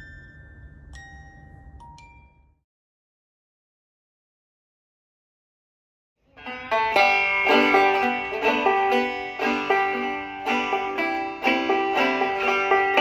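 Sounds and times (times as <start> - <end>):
banjo playing clawhammer style: 6.4 - 13.0.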